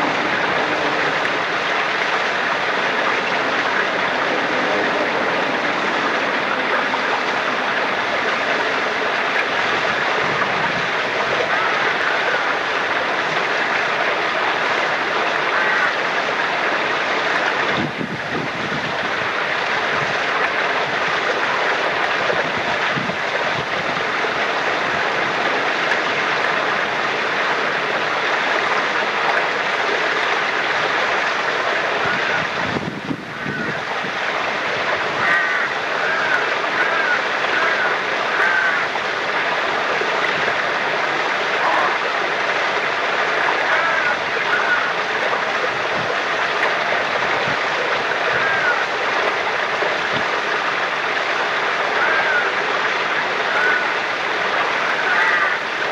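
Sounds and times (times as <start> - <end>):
spring water flowing: 0.0 - 55.9.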